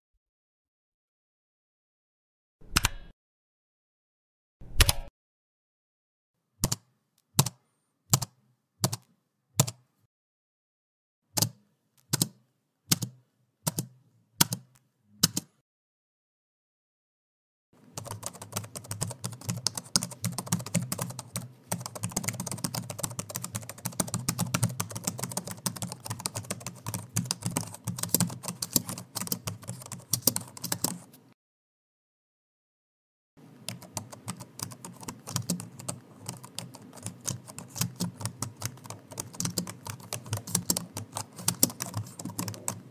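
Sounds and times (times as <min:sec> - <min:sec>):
fast typing on keyboard: 0:17.9 - 0:31.1, 0:33.6 - 0:42.9.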